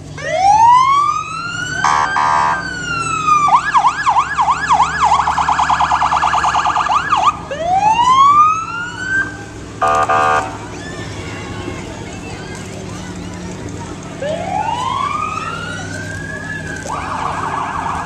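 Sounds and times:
fire engine siren: 0:00.0 - 0:11.0, 0:14.2 - 0:18.0
short horn blasts: 0:09.8 - 0:10.6.

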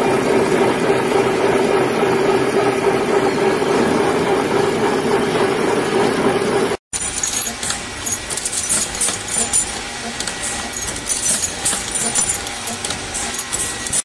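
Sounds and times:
machine running: 0:00.1 - 0:14.0
steel tubes clinking together: 0:07.0 - 0:14.0.

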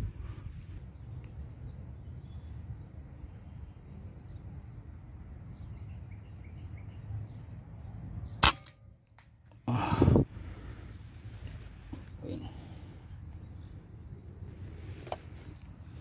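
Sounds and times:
low outdoor rumble: 0:00.0 - 0:16.0
air rifle shot crack: 0:08.4 - 0:08.9.

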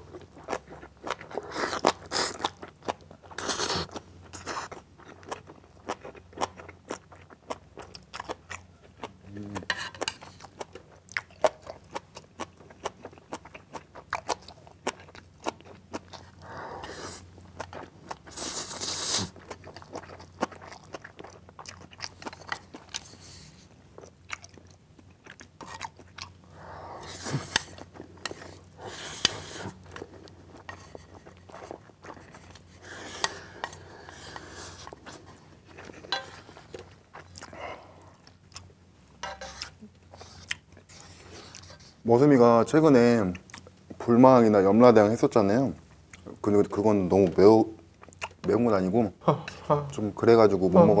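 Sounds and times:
close chewing of noodles: 0:00.0 - 0:42.0, 0:47.9 - 0:48.4
slurping noodles: 0:18.3 - 0:19.4.

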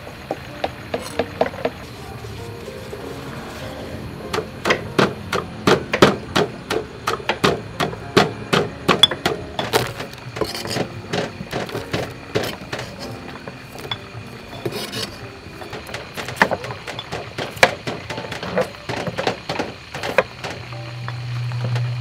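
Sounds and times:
pestle pounding in a mortar: 0:04.3 - 0:20.6.

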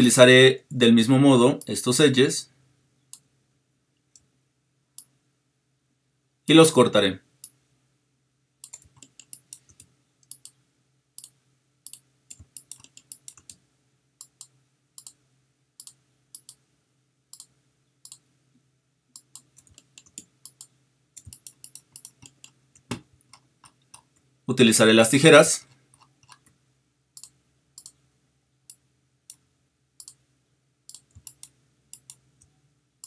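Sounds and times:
computer mouse clicking: 0:08.6 - 0:10.6, 0:11.2 - 0:13.6, 0:14.2 - 0:15.2, 0:15.8 - 0:16.6, 0:17.3 - 0:18.3, 0:19.2 - 0:24.2, 0:27.2 - 0:28.0, 0:30.0 - 0:30.2, 0:30.9 - 0:32.5.

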